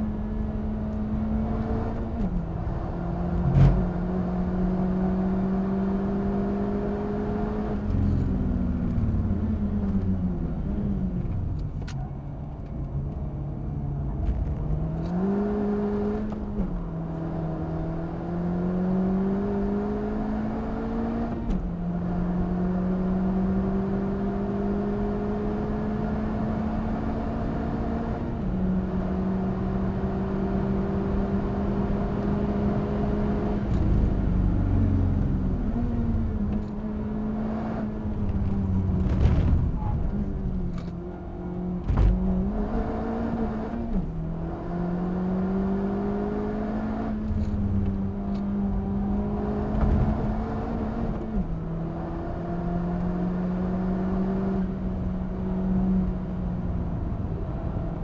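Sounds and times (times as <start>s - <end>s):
car engine accelerating: 0.0s - 58.0s
tyre and wind noise: 38.0s - 41.1s.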